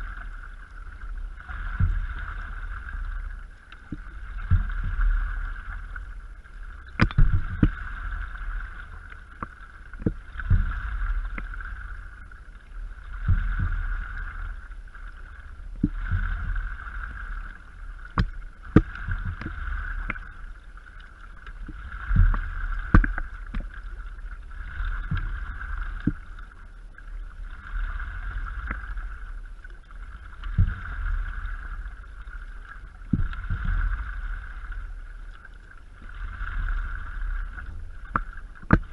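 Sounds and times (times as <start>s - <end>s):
paddle strokes splashing water: 0.0s - 38.9s
wind rumble on microphone: 0.0s - 38.9s
paddle knocking board: 18.1s - 20.2s, 38.1s - 38.9s.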